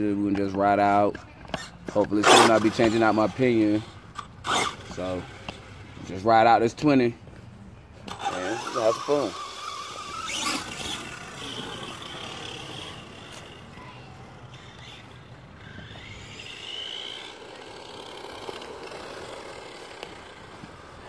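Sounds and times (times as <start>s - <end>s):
electric motor whining: 8.1s - 21.0s.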